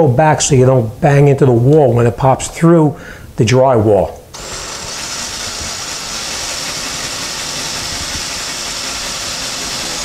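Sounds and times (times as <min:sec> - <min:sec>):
cordless drill boring drywall: 0:04.4 - 0:10.0.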